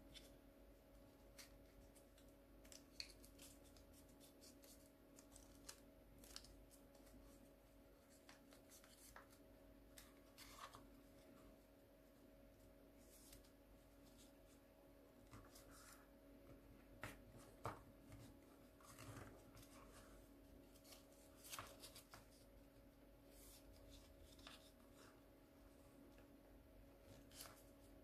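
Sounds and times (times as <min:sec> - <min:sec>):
low steady hum: 0:00.0 - 0:28.0
paper rustling and crinkling: 0:01.1 - 0:11.4, 0:17.0 - 0:22.5, 0:23.2 - 0:25.2, 0:27.0 - 0:28.0.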